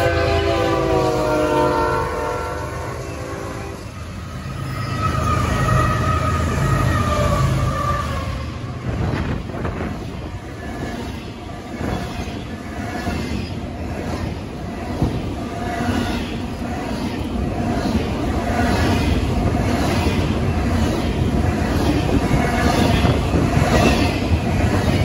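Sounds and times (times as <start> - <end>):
train horn: 0.0 - 8.6.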